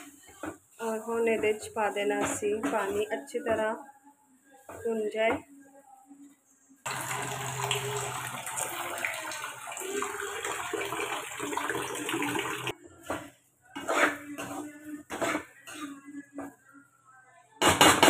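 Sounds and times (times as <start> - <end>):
water running from tap into vessel: 6.9 - 12.7.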